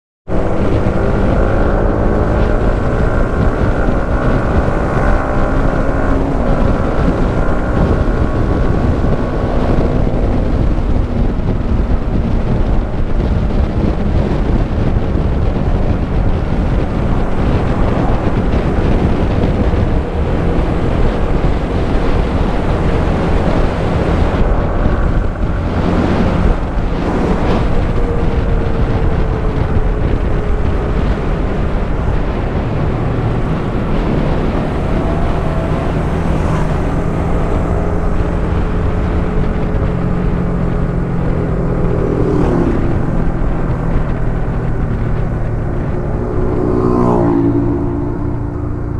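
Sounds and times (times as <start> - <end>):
motorcycle engine running: 0.3 - 48.9
wind buffeting on microphone: 0.3 - 48.9.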